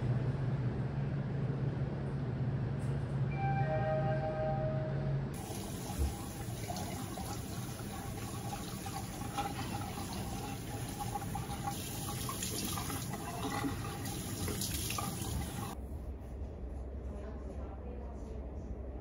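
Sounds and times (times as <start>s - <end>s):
tap water running into sink: 5.4s - 15.8s.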